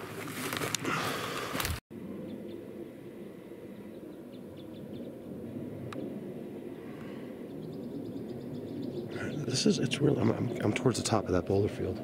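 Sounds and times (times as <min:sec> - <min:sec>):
footsteps rustling through shrubs: 0:00.0 - 0:00.8.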